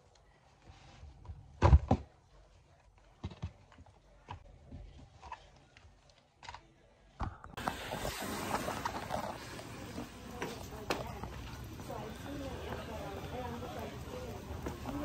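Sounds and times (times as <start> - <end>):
steady background noise: 7.5 - 15.0.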